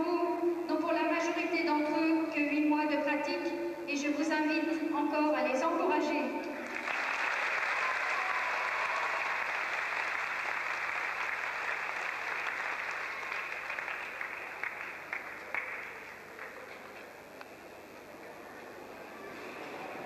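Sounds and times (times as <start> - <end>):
audience applauding: 6.6 - 17.2.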